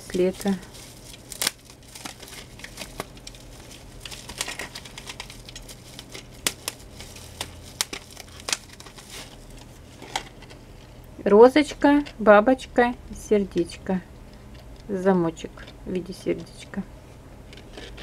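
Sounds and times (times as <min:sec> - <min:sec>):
bubble wrap crinkling: 0:00.0 - 0:11.1.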